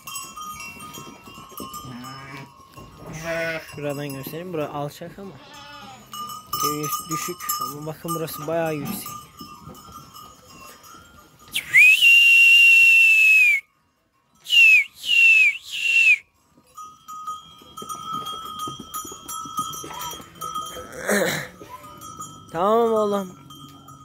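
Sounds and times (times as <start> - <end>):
loud herding whistle: 11.5 - 13.7, 14.4 - 16.3.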